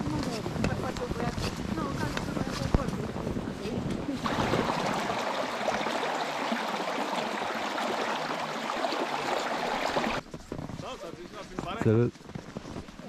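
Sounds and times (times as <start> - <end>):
water rushing over rocks: 4.2 - 10.2.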